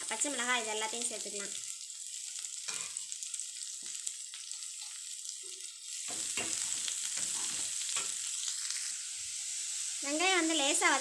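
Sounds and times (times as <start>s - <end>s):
vegetables sizzling in oil: 0.0s - 11.0s
metal spatula scraping pan: 2.7s - 3.0s, 6.0s - 8.3s.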